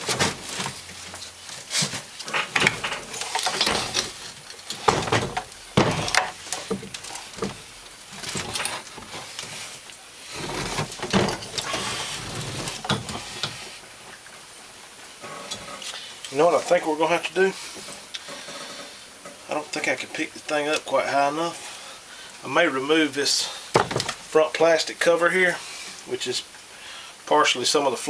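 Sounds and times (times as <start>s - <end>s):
metal casing scraping: 0.0s - 13.8s
metal clunks and knocks: 2.2s - 9.1s, 10.4s - 11.9s, 23.8s - 24.2s.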